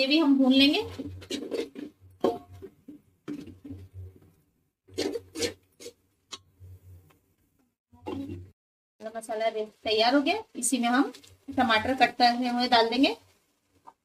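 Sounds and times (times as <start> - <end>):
metal spatula scraping a pot: 0.4 - 4.2, 4.9 - 6.4.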